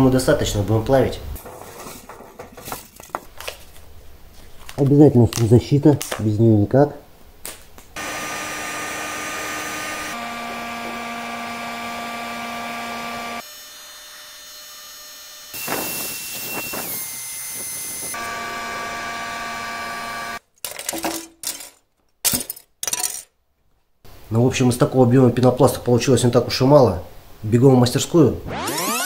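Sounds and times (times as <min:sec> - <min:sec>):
heat gun blowing and whining: 0:08.0 - 0:20.4, 0:28.5 - 0:29.0.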